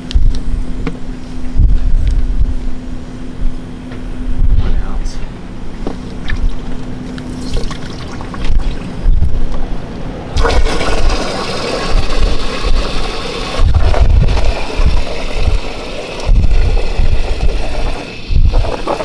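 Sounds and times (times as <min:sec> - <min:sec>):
wind buffeting microphone: 0:01.4 - 0:03.6, 0:04.2 - 0:04.9, 0:08.4 - 0:09.8, 0:11.8 - 0:19.0
hose water filling plastic bin: 0:10.4 - 0:19.0.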